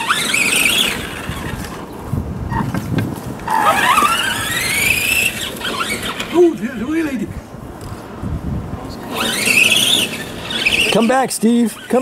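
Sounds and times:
toy truck motor whining: 0.0 - 1.8, 3.5 - 6.6, 9.0 - 12.0.

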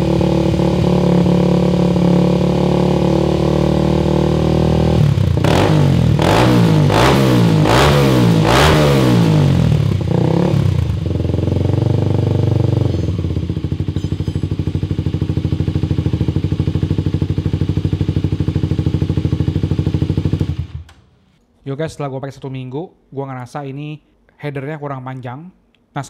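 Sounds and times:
motorcycle engine idling: 9.2 - 20.9.

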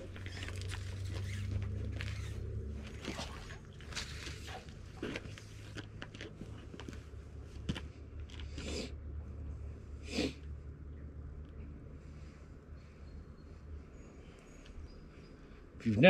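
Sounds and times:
rope rustling and scraping: 0.0 - 8.8
low steady rumble: 0.0 - 16.0.

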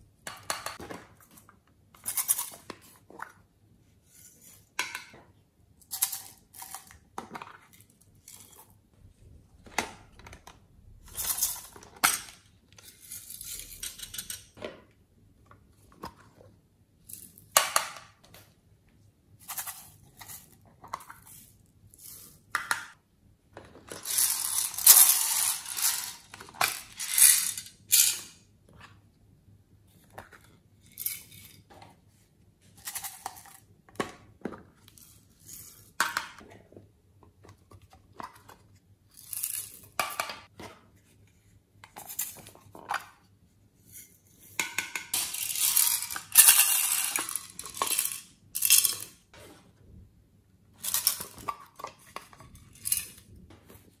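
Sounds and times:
sequins rattling in plastic containers: 23.9 - 28.3, 45.1 - 49.2.

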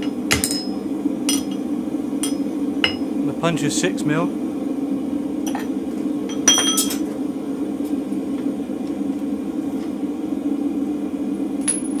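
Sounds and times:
steel clinking on anvil: 0.0 - 1.6, 2.2 - 3.0
gas forge burner roaring: 0.0 - 12.0.

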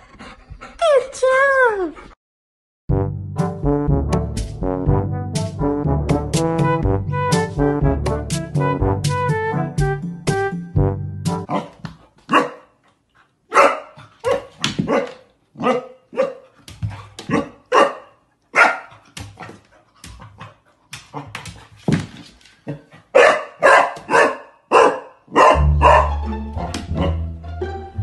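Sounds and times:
puppy barking: 11.5 - 12.7, 13.5 - 16.4, 17.3 - 19.0, 23.1 - 26.2.

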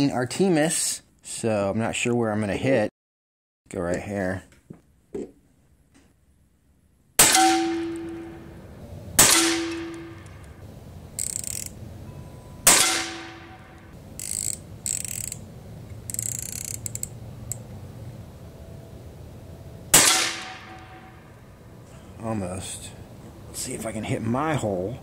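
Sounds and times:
air rifle shots: 7.2 - 8.3, 9.2 - 10.4, 12.6 - 13.9, 19.9 - 21.3
rifle action clicking and sliding: 11.2 - 11.8, 14.2 - 17.6.

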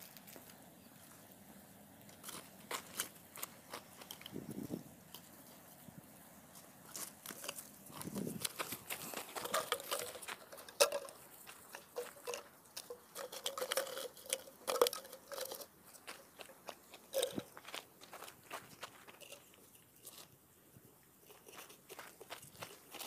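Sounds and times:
feet shifting on dry soil: 2.0 - 14.3, 15.0 - 20.4, 21.2 - 23.0
plastic bottles and straw handled: 2.1 - 5.8, 6.5 - 17.6.

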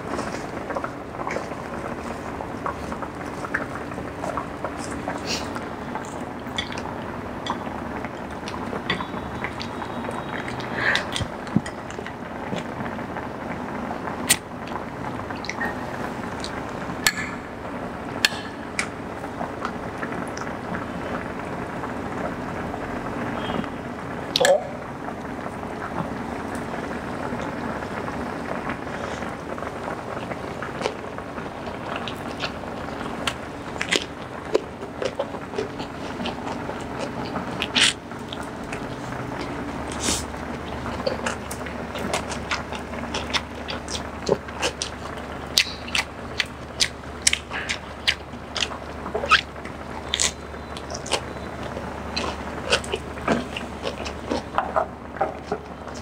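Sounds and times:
broth simmering in a pot: 0.0 - 56.0
rice paper crinkles and clicks: 30.0 - 56.0.

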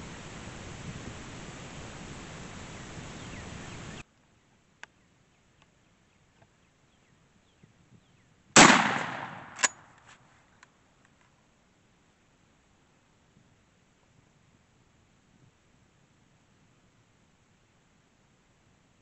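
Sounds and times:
steady hiss: 0.0 - 6.6
shotgun blast: 8.6 - 9.9
sharp crack: 8.6 - 10.2.

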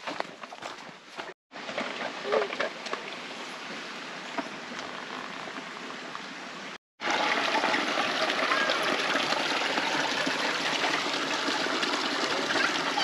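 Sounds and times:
footsteps crunching on leaves: 0.0 - 1.4
creek water running: 0.0 - 13.0.

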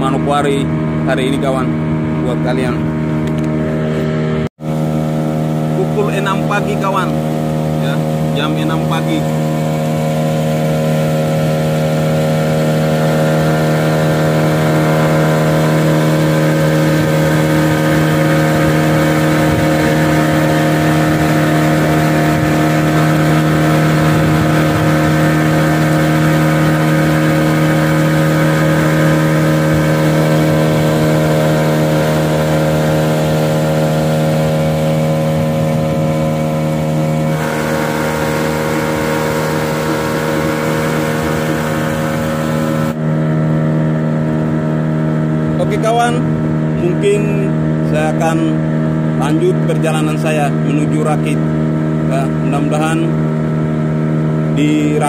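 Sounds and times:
boat engine droning: 0.0 - 55.0.

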